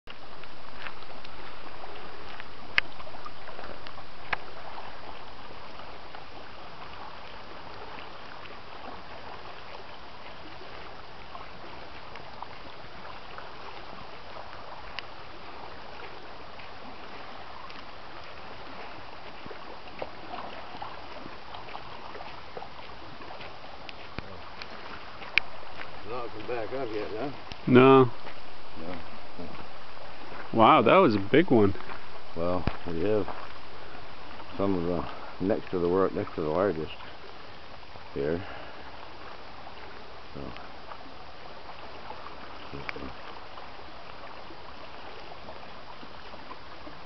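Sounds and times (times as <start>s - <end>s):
waves lapping on rocky shore: 0.1s - 47.0s
faint clicks: 2.2s - 4.5s, 14.5s - 15.1s, 17.6s - 17.9s, 23.3s - 26.5s, 27.4s - 29.6s.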